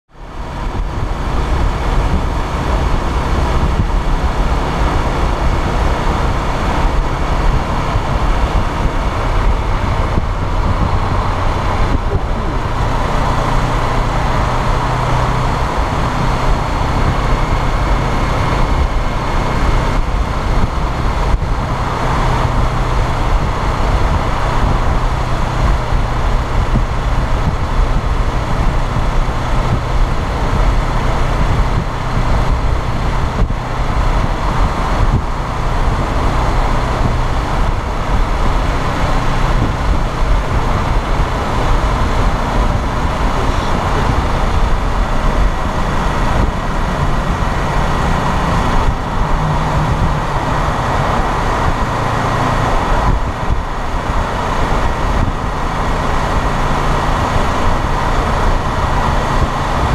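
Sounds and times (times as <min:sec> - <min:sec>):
motorcycle engine cruising: 0:00.1 - 0:59.9
wind rush over microphone: 0:00.1 - 0:59.9.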